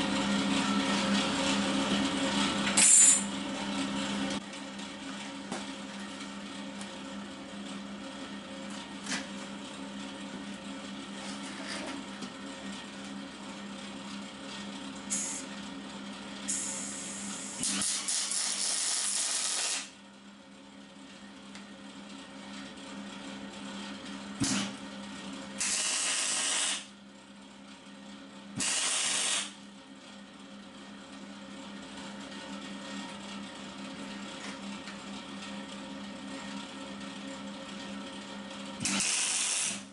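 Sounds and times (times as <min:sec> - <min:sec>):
welding machine hum: 0:00.0 - 0:03.3, 0:14.9 - 0:15.5, 0:16.5 - 0:20.0, 0:24.4 - 0:27.0, 0:28.6 - 0:29.6, 0:38.8 - 0:39.9.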